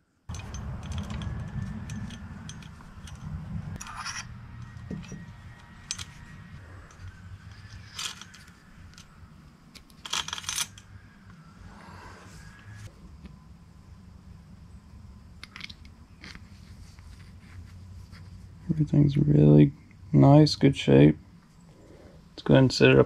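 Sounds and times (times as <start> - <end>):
low rumble: 0.3 - 9.7
metal engine parts clinking: 0.3 - 11.0, 15.4 - 16.4.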